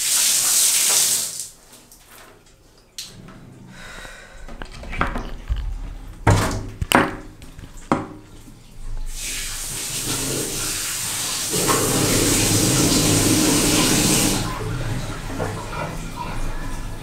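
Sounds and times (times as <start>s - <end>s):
water tap running: 0.0s - 1.6s, 4.5s - 17.0s
sharp knocks: 6.2s - 8.2s.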